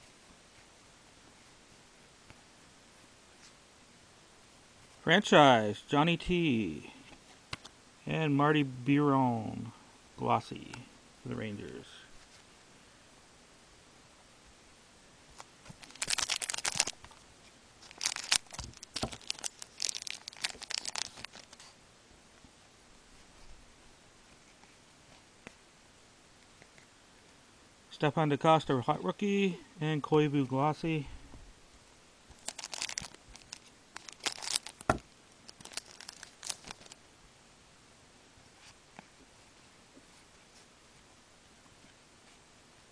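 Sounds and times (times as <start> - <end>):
wrapper crackling: 15.7 - 17.1, 17.8 - 21.7, 32.3 - 37.0.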